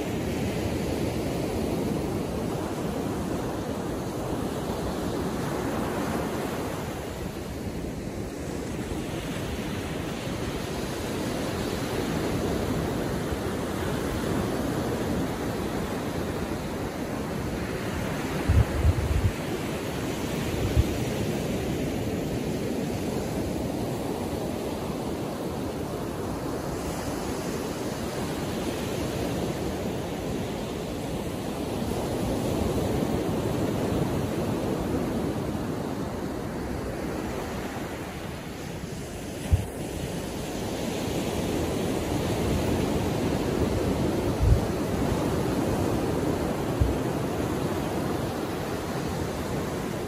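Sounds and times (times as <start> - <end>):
small waves breaking on beach: 0.0 - 50.0
wind buffeting microphone: 10.5 - 21.5, 41.2 - 50.0.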